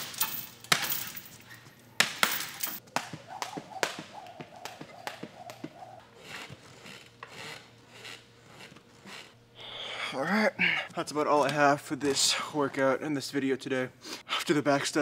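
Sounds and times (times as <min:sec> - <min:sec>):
jump rope slapping floor mat: 0:02.0 - 0:06.6.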